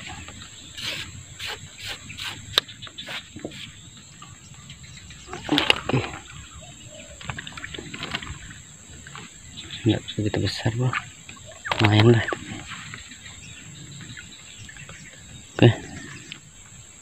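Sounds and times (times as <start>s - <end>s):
high-pitched insect drone: 0.0s - 4.1s.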